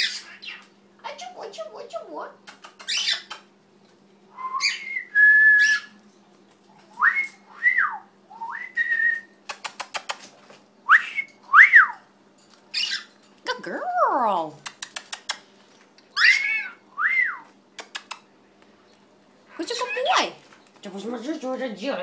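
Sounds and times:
cockatiel whistling: 4.4 - 5.9, 16.2 - 17.5
quick run of clicks: 9.5 - 10.4.

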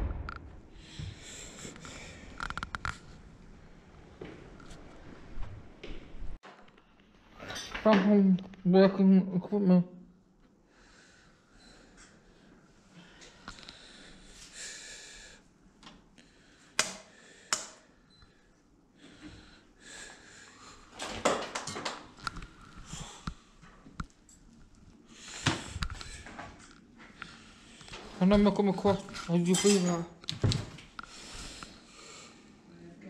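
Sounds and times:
close breathing and sniffing: 31.0 - 32.6.

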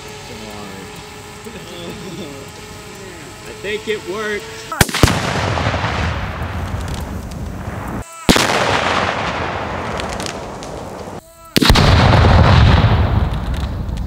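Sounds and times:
explosion booming: 4.8 - 10.6, 11.6 - 14.0.

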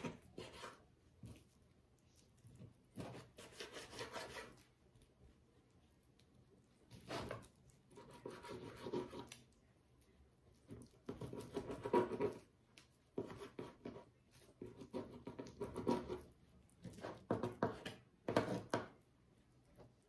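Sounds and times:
knife sawing through raw meat: 3.0 - 4.6.

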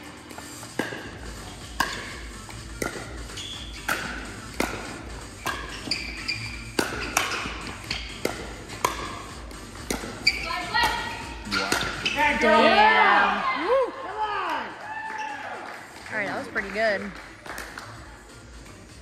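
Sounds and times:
ball bouncing on court: 0.6 - 12.5
paddles hitting plastic ball: 0.8 - 6.0, 6.7 - 12.1.

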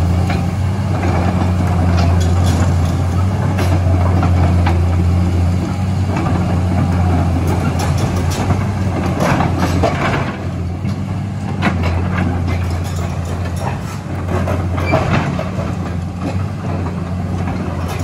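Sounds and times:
excavator diesel engine drone: 0.0 - 18.0
metal clanks and clicks: 1.8 - 4.8, 7.4 - 18.0.

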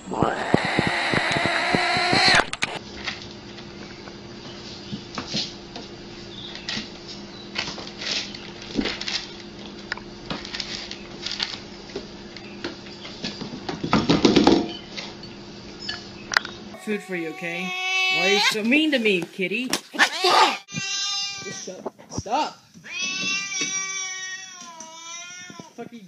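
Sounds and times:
cats crunching dry kibble: 7.8 - 11.7.

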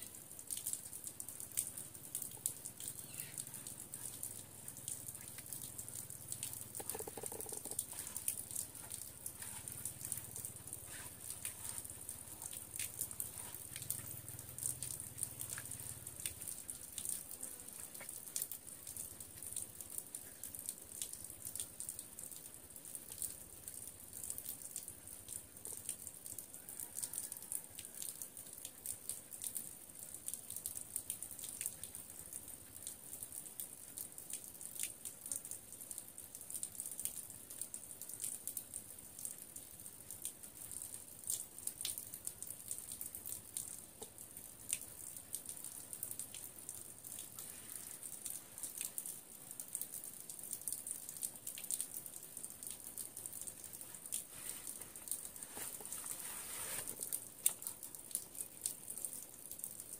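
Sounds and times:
water dripping: 0.0 - 59.9
wet clothes ticks: 1.4 - 17.2, 56.8 - 58.8.

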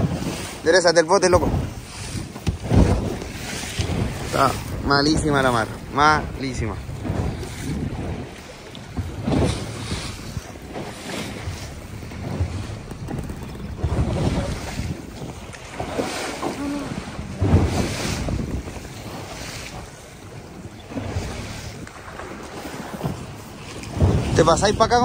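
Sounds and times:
waves washing around hull: 0.0 - 25.0
wind buffeting microphone: 0.0 - 25.0.

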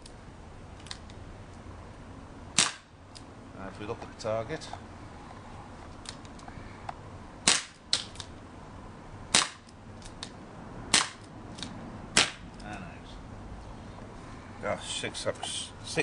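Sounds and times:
airsoft revolver shots: 2.6 - 2.9, 7.4 - 8.1, 9.3 - 9.7, 10.9 - 11.3, 12.1 - 12.4.

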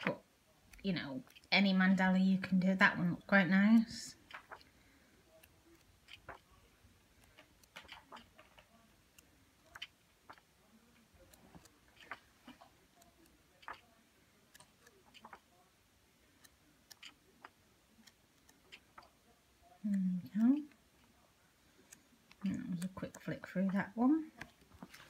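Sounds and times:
paper pages rustling: 24.6 - 25.0.

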